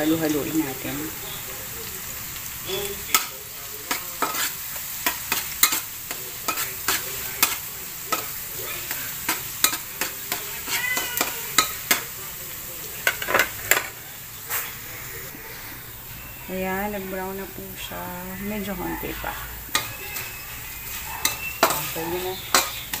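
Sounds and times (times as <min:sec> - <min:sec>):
garlic sizzling in hot oil: 0:00.0 - 0:23.0
spatula scraping a wok: 0:03.9 - 0:12.2, 0:17.7 - 0:23.0.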